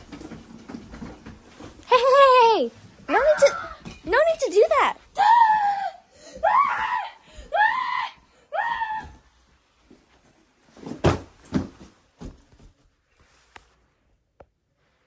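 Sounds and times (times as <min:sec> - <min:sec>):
child screaming: 0:05.2 - 0:09.2.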